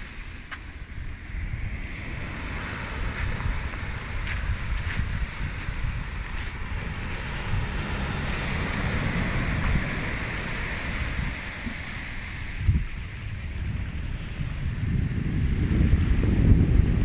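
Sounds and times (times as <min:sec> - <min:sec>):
water rushing over pebbles: 0:00.0 - 0:01.3, 0:02.0 - 0:12.8
surf washing in: 0:00.0 - 0:17.0
wind rumbling on microphone: 0:00.0 - 0:17.0.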